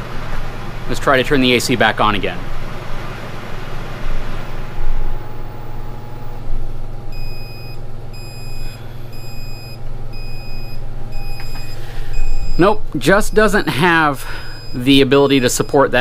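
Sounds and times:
steady low hum: 0.0 - 16.0
high alarm beeps: 7.1 - 16.0.

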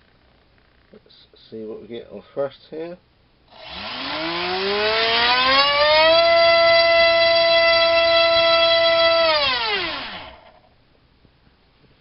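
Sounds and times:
electric motor whine: 3.5 - 10.7.

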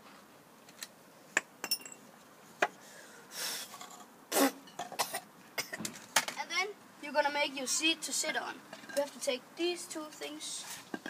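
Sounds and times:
tools handled on paving stones: 0.0 - 2.7.

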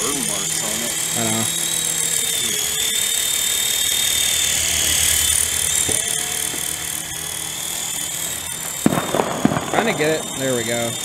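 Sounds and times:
toy helicopter rotors whirring: 0.0 - 11.0.

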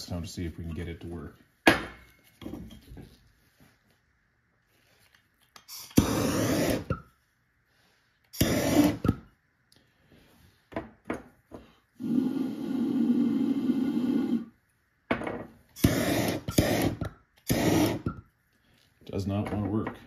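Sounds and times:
gas torch hissing: 5.6 - 7.1, 8.3 - 9.3, 12.0 - 14.6, 15.8 - 18.2.

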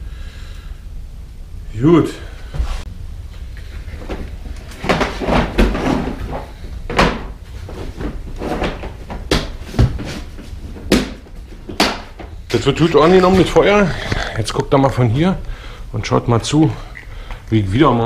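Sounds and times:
sharp cracks and knocks: 4.0 - 12.6
wood fire crackling: 10.5 - 18.0.

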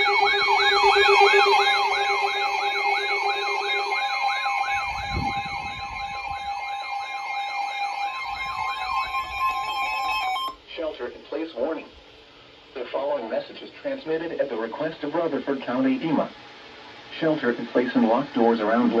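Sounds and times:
siren-like alarm warble: 0.0 - 10.6
steady high alert tones: 0.0 - 10.6.

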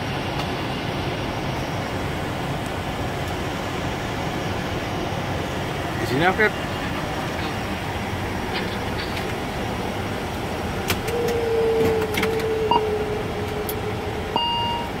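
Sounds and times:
faint engine whine: 0.0 - 15.0
turboprop engines running: 0.0 - 15.0
steady electronic tone: 11.1 - 15.0.

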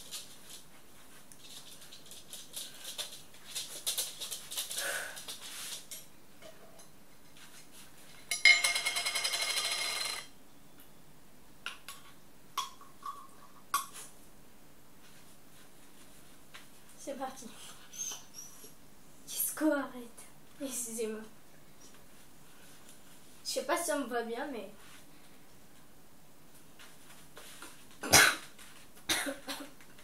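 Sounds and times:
rustles and small clicks: 0.0 - 6.1.

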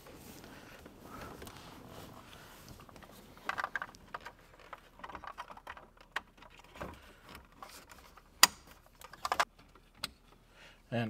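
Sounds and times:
plastic trim clicks and rustles: 2.3 - 10.4.

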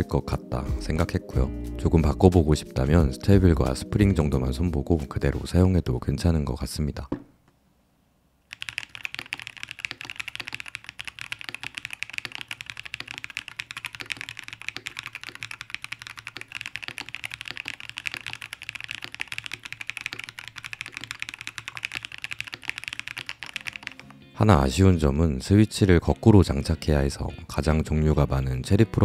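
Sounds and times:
fast typing on mechanical keyboard: 8.5 - 24.2.

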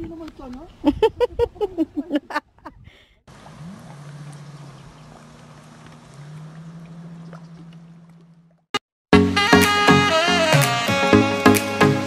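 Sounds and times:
jet ski engine droning: 3.3 - 8.7.

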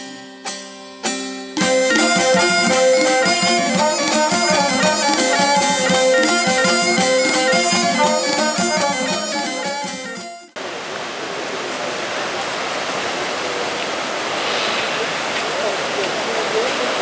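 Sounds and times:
instrumental background music: 0.0 - 10.6.

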